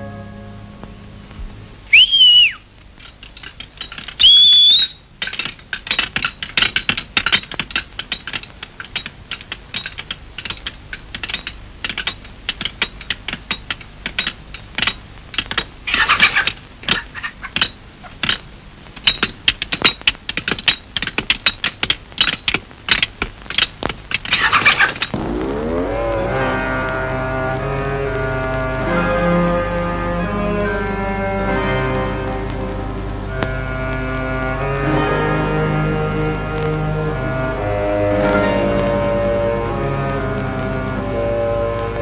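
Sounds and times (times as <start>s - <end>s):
whistle-like tone: 1.9s - 2.6s, 4.2s - 5.0s.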